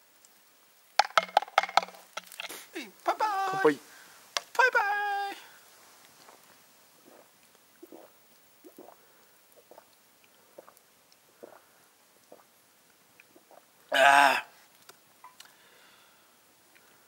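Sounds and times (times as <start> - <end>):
person exclaiming: 2.7 - 3.8, 4.5 - 5.6, 13.9 - 14.5
person swallowing juice: 6.3 - 10.8, 11.4 - 11.7, 12.3 - 12.5, 13.2 - 13.7.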